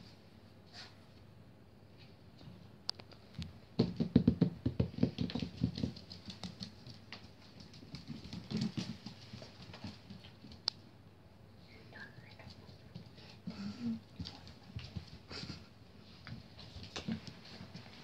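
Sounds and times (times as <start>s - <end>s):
puppy claws clicking on floor: 4.7s - 10.8s, 14.2s - 15.6s, 16.2s - 18.0s.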